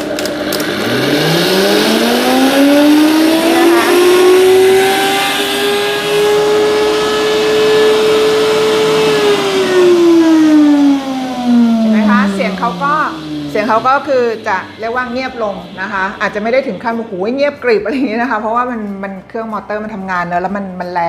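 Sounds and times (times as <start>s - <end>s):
blender motor whine: 0.0s - 17.2s.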